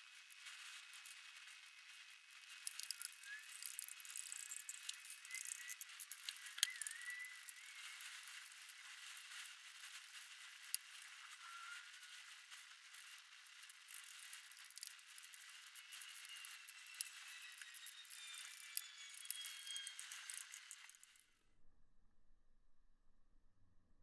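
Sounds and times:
paint dripping and clicking: 0.2s - 11.1s, 12.5s - 21.2s
faint short squeaks: 11.0s - 12.1s, 15.8s - 21.2s.

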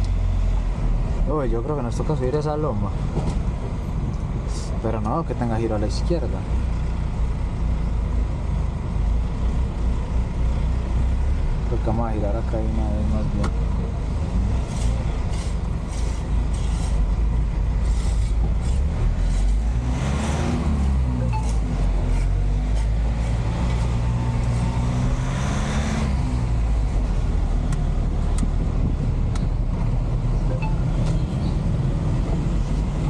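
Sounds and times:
truck engine revving: 17.7s - 33.0s.

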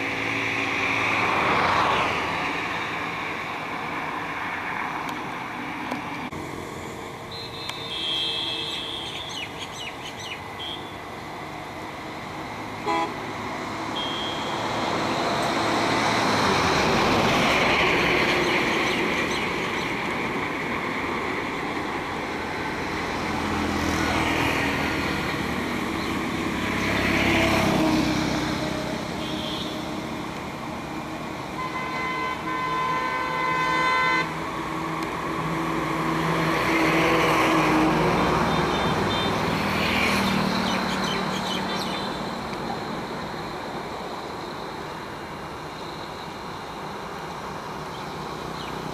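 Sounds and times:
road traffic passing: 0.0s - 48.9s
vehicle horn: 7.3s - 9.3s, 12.8s - 13.3s, 13.9s - 14.6s, 29.2s - 29.8s, 31.6s - 34.4s.

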